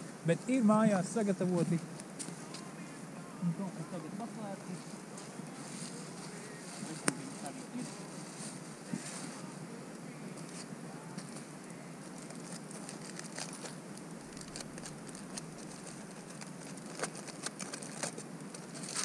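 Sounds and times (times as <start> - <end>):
low steady hiss: 0.0 - 19.0
foil packet crinkling: 12.1 - 19.0.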